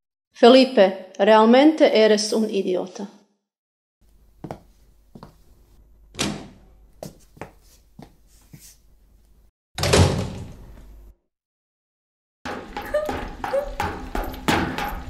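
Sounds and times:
door slamming: 0:06.2 - 0:06.6, 0:09.8 - 0:10.7.

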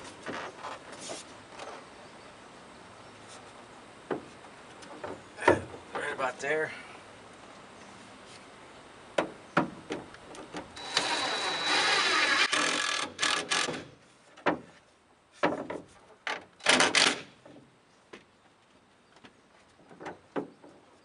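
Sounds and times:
cordless drill whining: 0:10.8 - 0:13.7.

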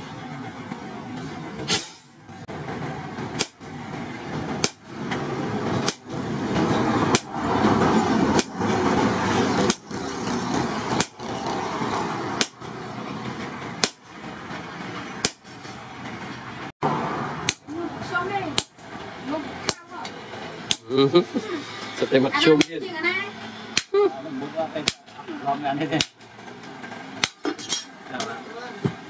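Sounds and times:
sledgehammer striking hot steel: 0:01.7 - 0:02.1, 0:03.3 - 0:03.7, 0:04.5 - 0:04.9, 0:07.1 - 0:07.3, 0:09.7 - 0:10.0, 0:12.4 - 0:12.7, 0:13.8 - 0:14.1, 0:15.2 - 0:15.6, 0:17.4 - 0:17.7, 0:18.6 - 0:18.8.

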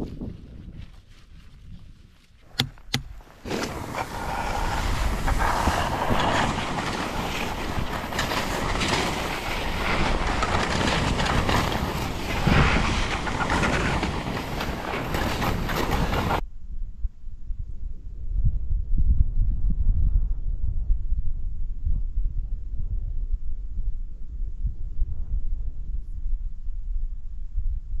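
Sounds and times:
wind on microphone: 0:00.0 - 0:28.0
sharp clicks: 0:02.5 - 0:03.2
skis sliding over snow: 0:03.2 - 0:16.4.

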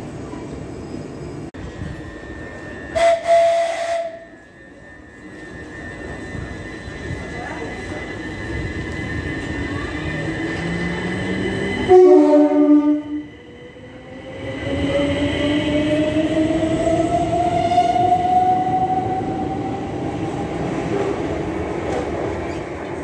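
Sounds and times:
two-tone train horn: 0:02.9 - 0:04.4, 0:11.9 - 0:13.2.

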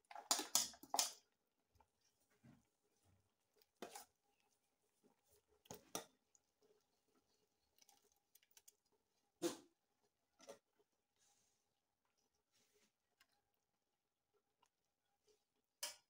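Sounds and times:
stirring thick soup in a pot: 0:00.0 - 0:16.0.

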